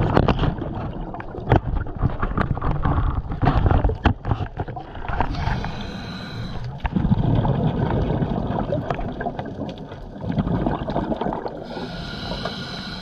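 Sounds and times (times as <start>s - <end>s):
underwater bubbling: 0.0s - 13.0s.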